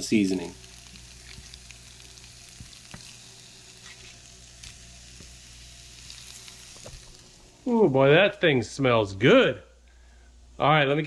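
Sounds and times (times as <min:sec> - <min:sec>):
fish sizzling in skillet: 0:00.0 - 0:07.8.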